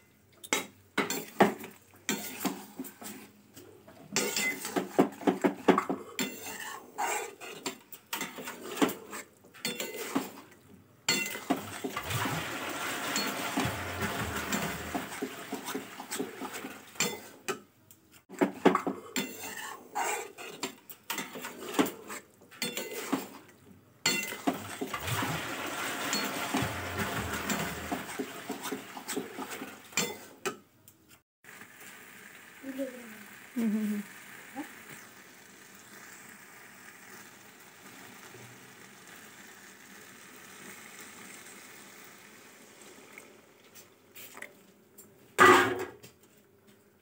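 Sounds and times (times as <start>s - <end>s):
metal spatula scraping a pan: 2.1s - 3.3s, 4.1s - 5.0s, 6.2s - 17.4s, 19.1s - 23.5s, 24.1s - 30.6s.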